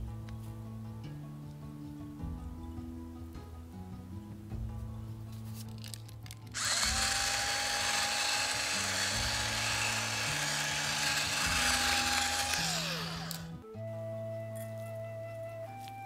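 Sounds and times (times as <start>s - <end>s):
background music: 0.0s - 16.0s
electric pepper grinder: 6.6s - 13.6s.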